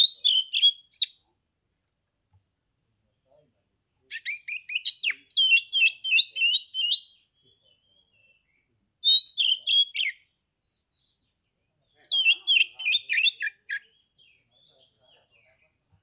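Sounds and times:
bird whistling song: 0.0 - 1.2, 4.1 - 10.3, 12.0 - 14.4.

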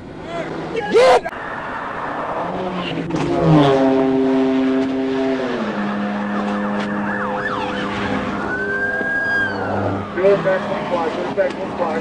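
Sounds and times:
police siren wailing: 5.5 - 11.0.

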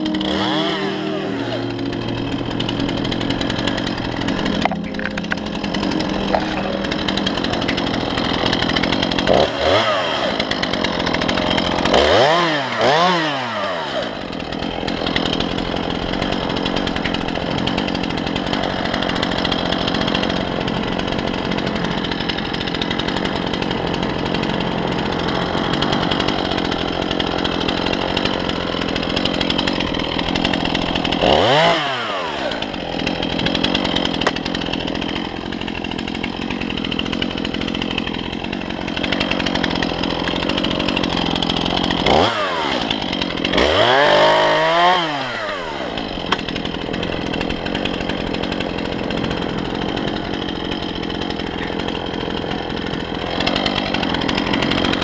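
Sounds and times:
chainsaw cutting wood: 0.0 - 55.0.

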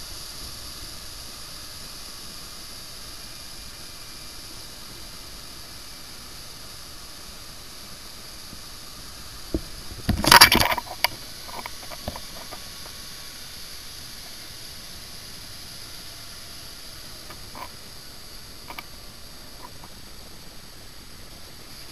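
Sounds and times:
boat under way hissing: 0.0 - 21.9
sharp knocks: 9.5 - 12.6
loud scraping rustle: 9.6 - 13.0, 17.2 - 17.8.

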